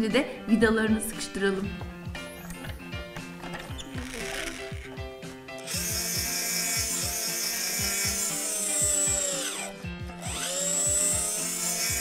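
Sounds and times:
background music: 0:00.0 - 0:12.0
toy screwdriver whirring: 0:03.9 - 0:04.8, 0:05.6 - 0:12.0.

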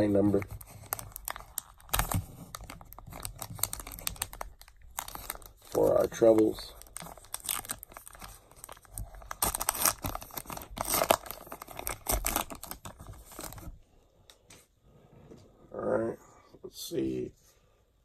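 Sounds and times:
wrapper being torn open: 0:00.3 - 0:13.7.

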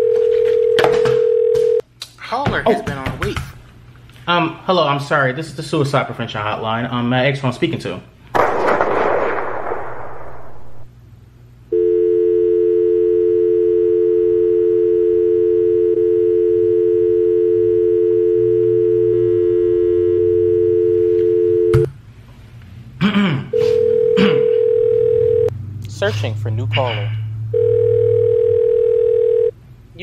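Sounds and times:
phone line click: 0:00.0 - 0:01.8, 0:11.7 - 0:21.9
telephone dial tone: 0:00.0 - 0:01.8, 0:11.7 - 0:21.9, 0:23.7 - 0:25.5, 0:27.5 - 0:29.5.

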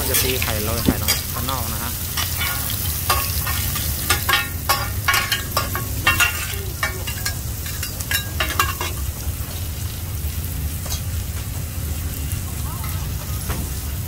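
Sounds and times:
metal utensil clinking and scraping: 0:00.0 - 0:09.3
pancake sizzling in oil: 0:00.0 - 0:14.0.

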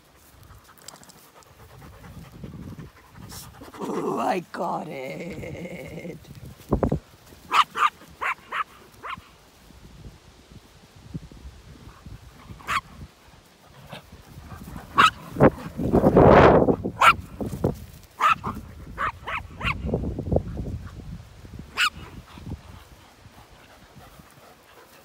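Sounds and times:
small dog yapping: 0:07.5 - 0:09.2, 0:12.6 - 0:12.9, 0:15.0 - 0:15.2, 0:18.2 - 0:19.8, 0:21.8 - 0:22.0.

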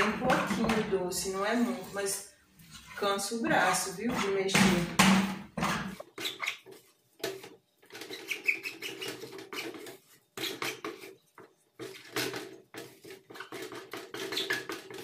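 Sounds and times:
person speaking: 0:00.0 - 0:02.3, 0:03.0 - 0:05.0
spoon scraping and squeaking in pot: 0:00.2 - 0:03.2, 0:05.6 - 0:15.0.

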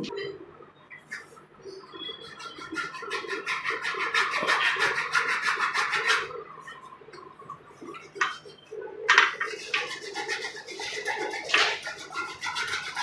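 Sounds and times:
hacksaw cutting plastic pipe: 0:02.8 - 0:06.3, 0:09.1 - 0:13.0.

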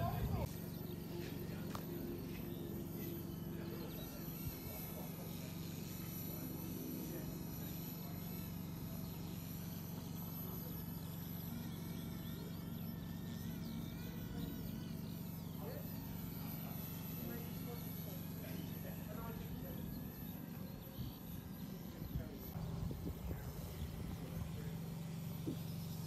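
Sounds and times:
electric motor whine: 0:00.0 - 0:26.0
helicopter rotor hum: 0:00.0 - 0:26.0.

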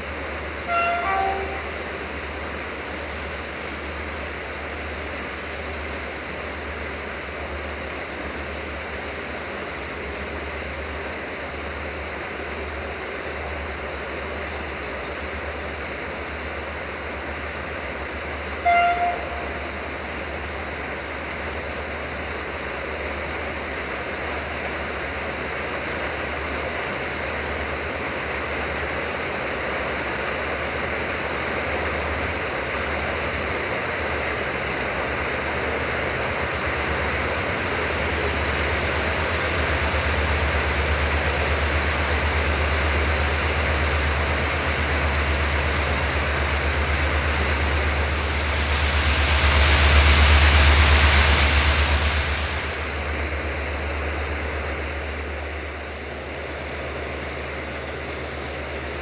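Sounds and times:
diesel train running: 0:00.0 - 0:59.0
train horn toot: 0:00.6 - 0:02.1, 0:18.6 - 0:19.9.

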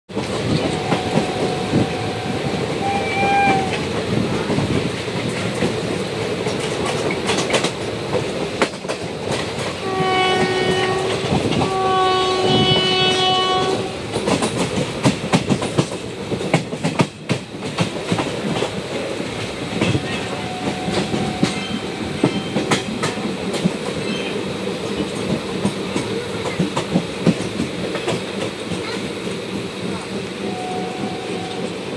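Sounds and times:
train wheels clacking over rail joints: 0:00.1 - 0:31.9
train horn: 0:00.4 - 0:03.9, 0:09.8 - 0:14.0, 0:19.6 - 0:23.3, 0:30.4 - 0:31.9.

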